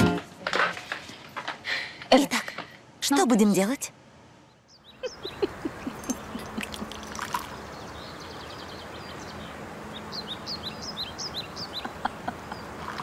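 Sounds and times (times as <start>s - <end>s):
steady background hiss: 0.0s - 13.0s
small birds chirping: 4.4s - 13.0s.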